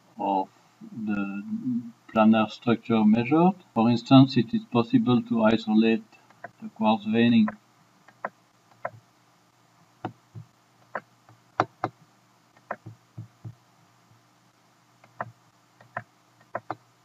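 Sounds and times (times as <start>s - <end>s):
faint electrical hum: 0.0s - 17.0s
computer mouse clicking: 7.4s - 9.0s, 10.0s - 12.0s, 12.6s - 13.6s, 15.0s - 16.8s.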